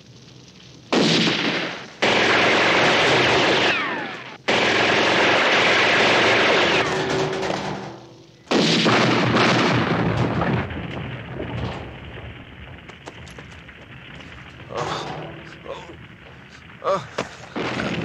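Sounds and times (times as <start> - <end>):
rapid handgun fire: 0.9 - 10.6
single gunshots cracking: 0.9 - 12.0
falling whines: 2.3 - 4.4.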